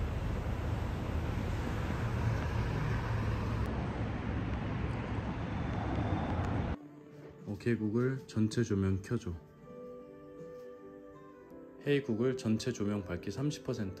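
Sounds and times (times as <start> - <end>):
road traffic rumble and hiss: 0.0 - 6.8.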